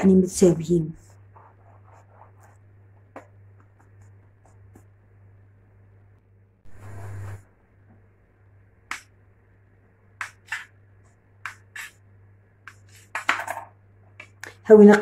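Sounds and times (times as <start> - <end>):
blade chopping dough on counter: 10.2 - 10.8, 11.4 - 12.0.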